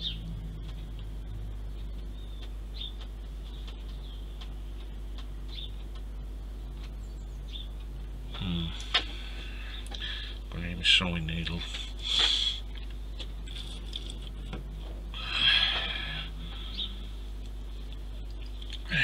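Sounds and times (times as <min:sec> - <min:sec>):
faint high whine: 0:00.0 - 0:19.0
steady low hum: 0:00.0 - 0:19.0
person murmuring: 0:08.3 - 0:09.0.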